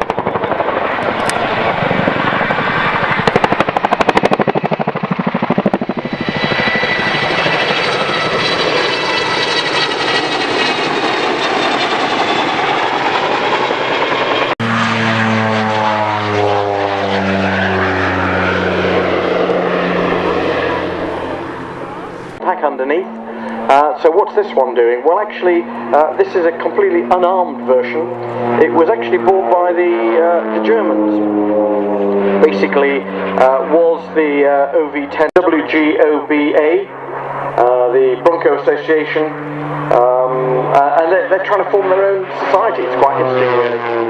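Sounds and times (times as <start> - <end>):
helicopter rotor blade slap: 0.0 - 44.0
helicopter turbine whine: 0.0 - 44.0
turboprop engines droning: 0.0 - 44.0.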